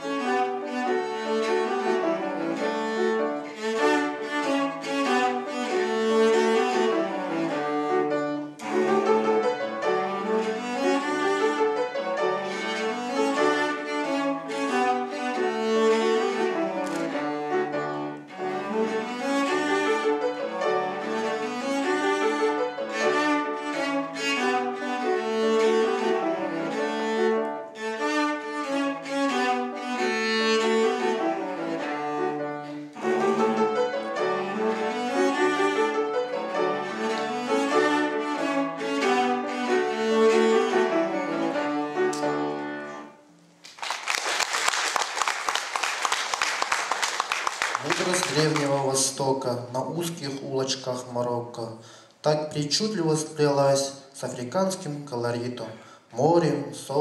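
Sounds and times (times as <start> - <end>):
cello bowed quick notes: 0.0 - 43.2
applause: 43.6 - 48.9.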